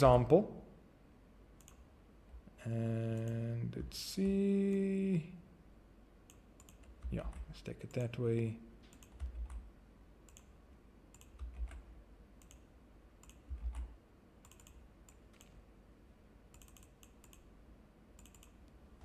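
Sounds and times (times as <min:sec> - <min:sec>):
mouse clicks: 0:01.6 - 0:01.8, 0:06.3 - 0:07.4, 0:10.3 - 0:10.5, 0:12.4 - 0:15.6, 0:16.5 - 0:17.5, 0:18.2 - 0:18.8
keyboard keystrokes: 0:11.1 - 0:12.6, 0:13.2 - 0:15.6, 0:16.5 - 0:17.4.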